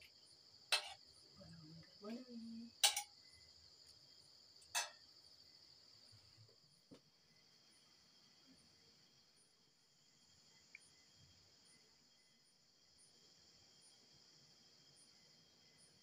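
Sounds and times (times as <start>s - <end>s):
crickets chirring: 0.0s - 16.0s
ladle clinking against steel pot: 2.8s - 3.1s, 4.8s - 5.0s.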